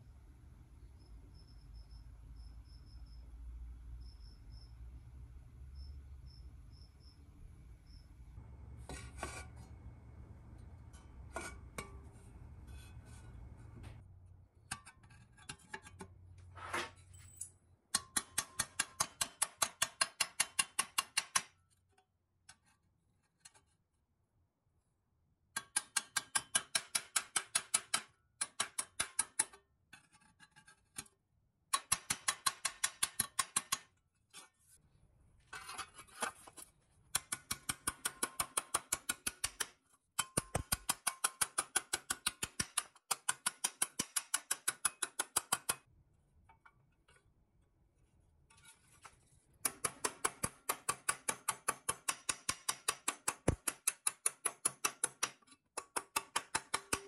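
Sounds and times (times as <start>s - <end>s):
hammer tapping on steel: 37.1s - 45.9s.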